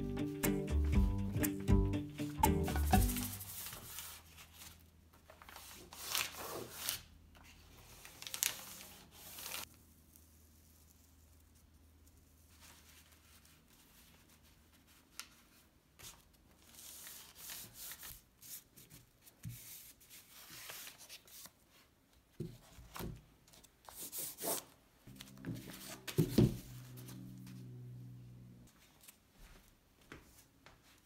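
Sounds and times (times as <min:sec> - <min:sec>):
stiff paper rustling and crinkling: 0:03.2 - 0:09.8.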